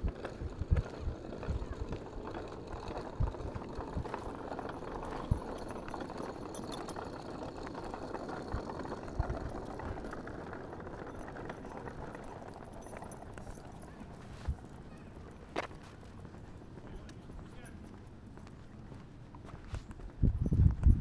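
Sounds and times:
footsteps on trail: 14.2s - 20.9s.

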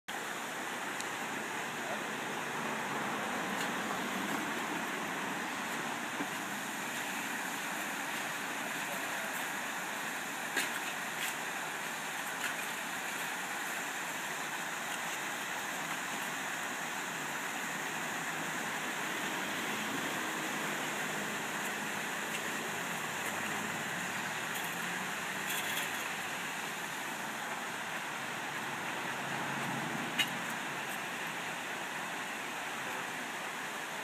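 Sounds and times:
waterfall and stream rushing: 0.1s - 34.0s.

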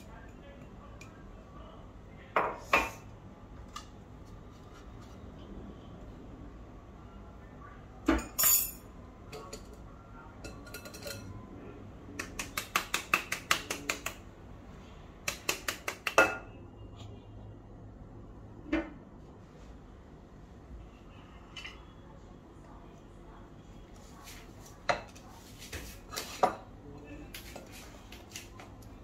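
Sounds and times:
metal utensils tapping glass bowl: 10.4s - 11.3s.

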